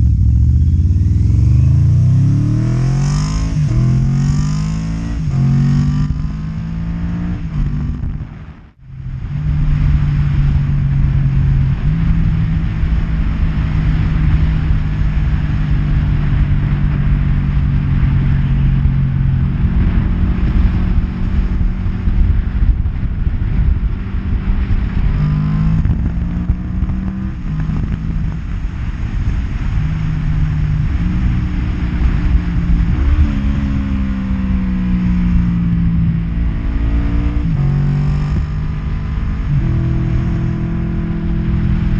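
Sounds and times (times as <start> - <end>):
motorcycle engine revving: 0.0 - 41.9.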